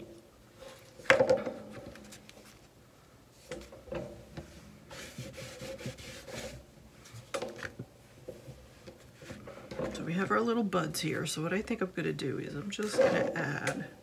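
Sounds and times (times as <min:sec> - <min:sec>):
paper rubbing and rustling: 0:04.9 - 0:07.2.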